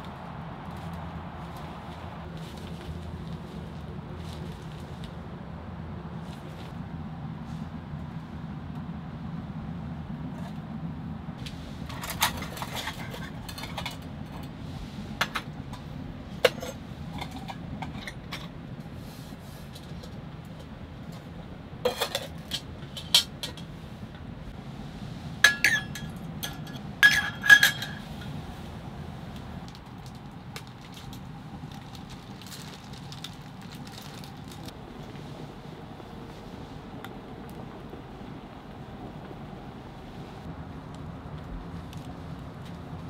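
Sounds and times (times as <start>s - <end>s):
steady low rumble: 0.0s - 43.0s
metal cups clinking: 25.4s - 28.1s.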